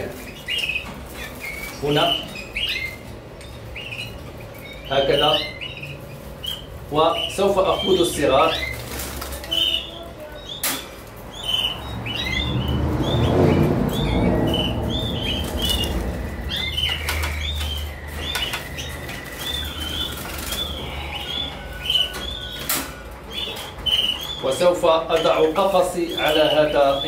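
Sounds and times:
canaries chirping: 0.0 - 27.0
wings fluttering: 14.7 - 21.0.

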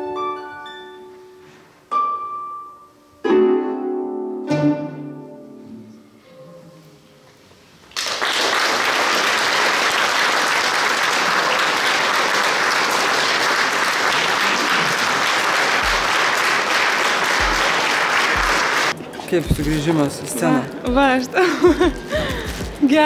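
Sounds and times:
audience applauding: 7.9 - 19.0.

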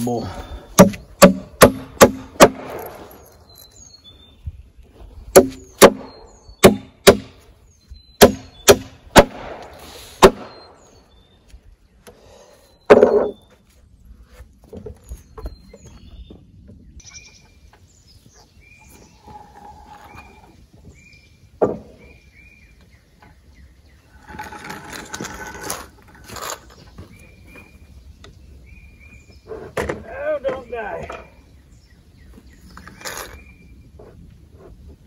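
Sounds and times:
hammer striking nails into wood: 0.8 - 2.9, 5.4 - 7.4, 8.2 - 9.4.

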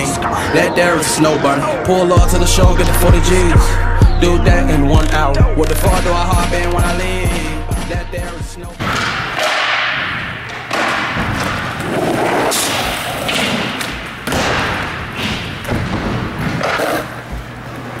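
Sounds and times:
skateboard rolling: 10.7 - 14.8, 15.5 - 18.0.

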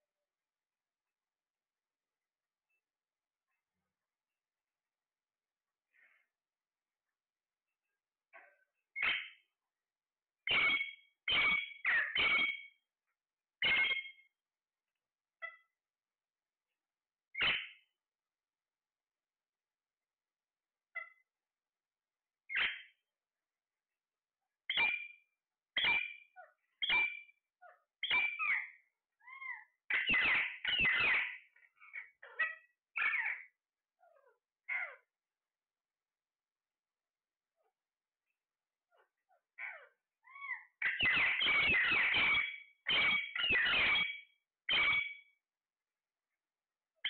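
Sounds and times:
parakeets squawking: 10.5 - 12.6, 29.3 - 33.5, 39.0 - 45.1.

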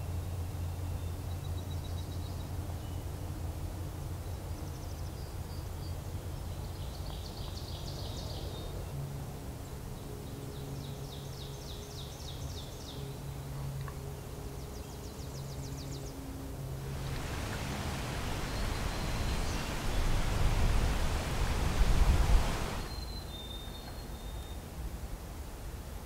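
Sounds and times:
low background rumble: 16.8 - 22.9
songbird high rapid trill: 16.9 - 23.1.

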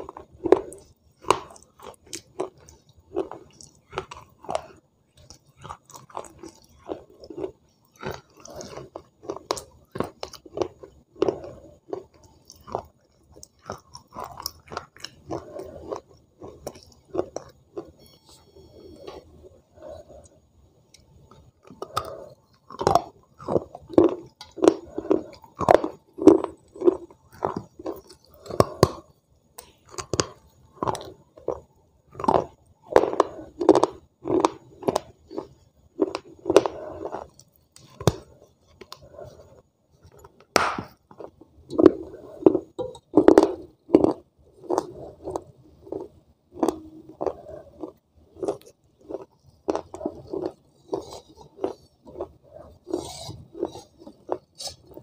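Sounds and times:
crunching and chewing: 0.0 - 55.0.

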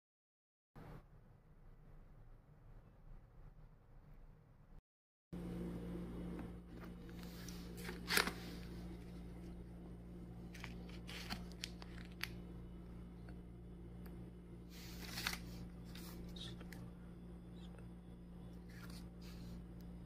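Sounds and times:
steady low hum: 5.4 - 20.0
plastic wrapper crinkling: 7.6 - 9.5, 10.4 - 12.4.

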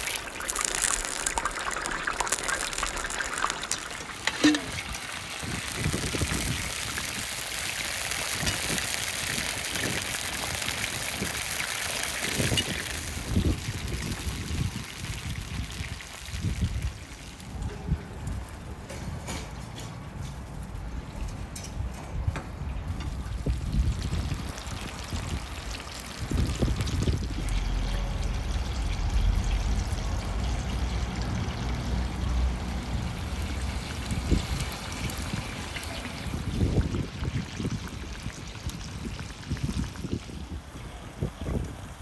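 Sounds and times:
liquid bubbling in a wok: 0.0 - 18.8, 22.7 - 42.0.

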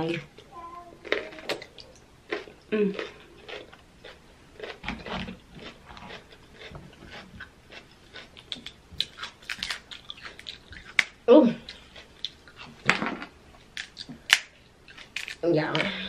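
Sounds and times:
chewing and mouth sounds: 1.0 - 12.8
crab shell cracking: 13.8 - 15.4.

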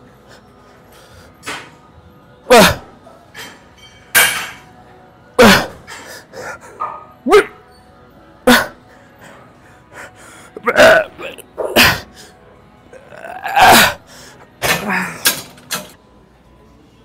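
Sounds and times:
man grunting: 2.5 - 2.9, 7.3 - 7.6, 10.6 - 12.0, 13.0 - 14.0.

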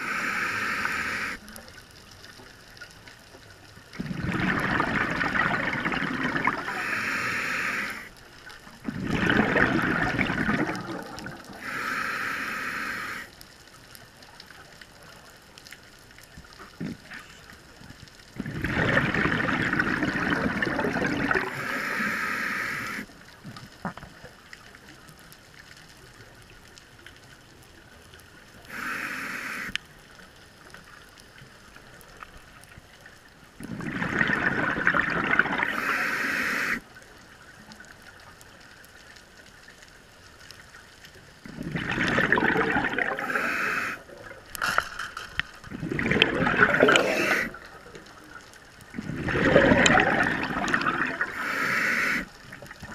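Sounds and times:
regulator hissing on inhale: 0.0 - 1.4, 6.6 - 8.2, 11.5 - 13.3, 21.4 - 23.1, 28.7 - 29.8, 35.6 - 36.8, 43.1 - 44.1, 46.6 - 47.6, 51.1 - 52.4
exhaled bubbles underwater: 3.7 - 13.3, 16.6 - 24.4, 33.5 - 38.2, 41.3 - 44.6, 45.4 - 52.9.

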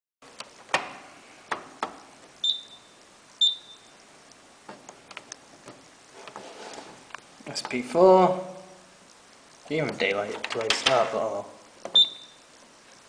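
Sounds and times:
short high beeps: 2.4 - 3.9, 12.0 - 12.4.

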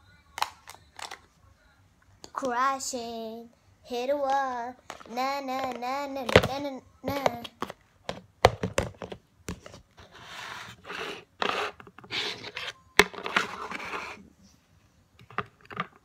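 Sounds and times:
plastic tubs knocking together: 4.9 - 9.2
plastic mould scraping on table: 9.0 - 14.2.

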